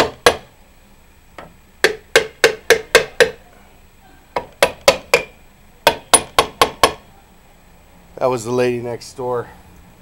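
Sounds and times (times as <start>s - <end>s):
hammer striking chisel on metal: 0.0s - 0.5s, 1.4s - 3.4s, 4.4s - 7.0s.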